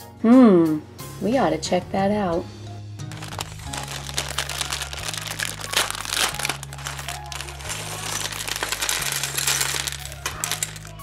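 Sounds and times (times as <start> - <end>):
background music with bass: 0.0 - 11.0
plastic bag crinkling: 3.1 - 11.0.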